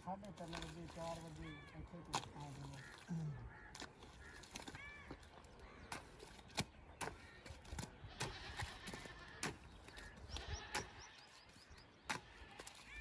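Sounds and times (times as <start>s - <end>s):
hoe chopping wet clay: 2.0s - 3.0s, 3.7s - 11.0s, 12.0s - 13.0s
bird chirping: 3.5s - 13.0s
animal bleating: 8.0s - 9.5s, 10.3s - 11.2s.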